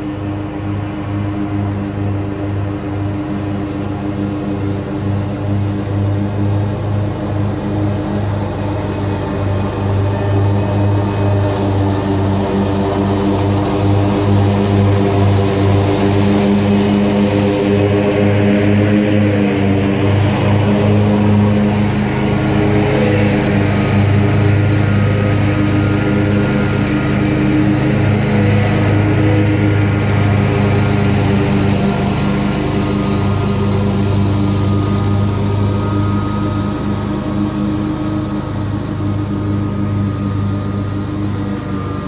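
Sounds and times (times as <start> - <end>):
mower engine running: 0.0 - 42.0.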